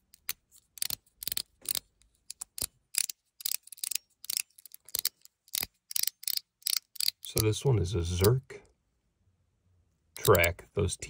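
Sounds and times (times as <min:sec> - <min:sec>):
metal fidget slider clicking: 0:00.0 - 0:07.5, 0:10.2 - 0:10.5.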